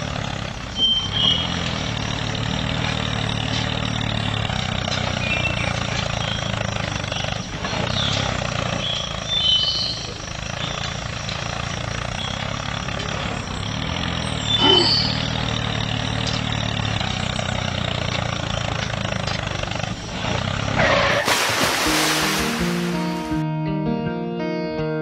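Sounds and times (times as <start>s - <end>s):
toy tractor motor humming: 0.0s - 20.8s
loud rushing noise: 21.2s - 23.4s.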